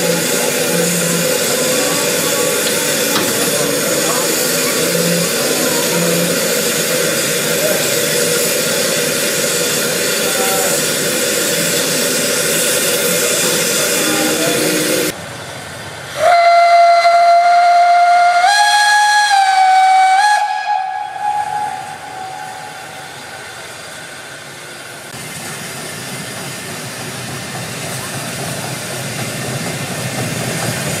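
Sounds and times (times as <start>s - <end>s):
train running noise: 0.0s - 31.0s
steam locomotive whistle: 16.2s - 23.3s.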